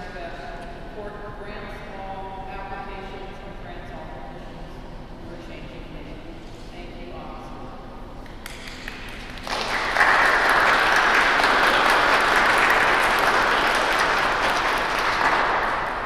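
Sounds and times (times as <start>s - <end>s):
crowd applauding: 8.2s - 16.0s.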